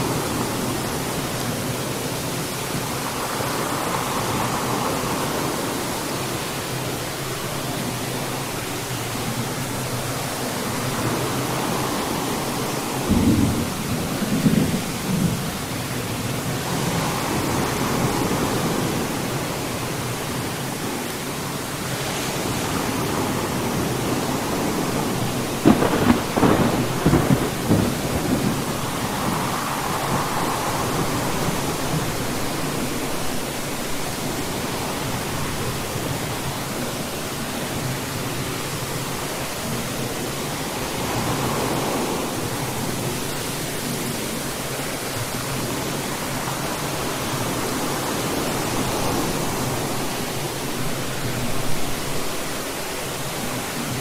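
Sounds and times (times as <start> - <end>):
steady rain: 0.0 - 54.0
crackling thunderclap: 13.0 - 15.6, 25.4 - 31.6.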